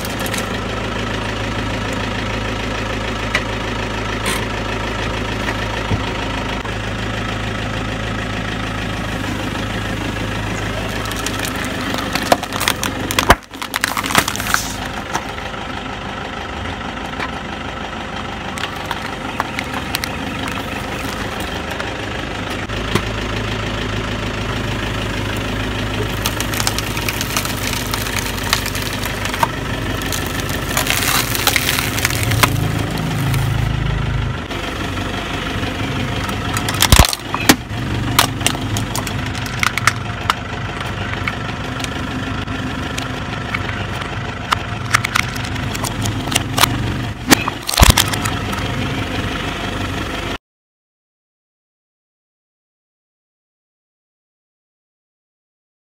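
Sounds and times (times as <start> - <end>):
objects crushed under tyre: 0.0 - 0.6, 9.5 - 15.4, 18.6 - 21.9, 25.8 - 33.7, 36.2 - 40.4, 44.5 - 48.4
car engine idling: 0.0 - 50.4
polystyrene foam crackling: 10.7 - 15.0, 26.0 - 33.7.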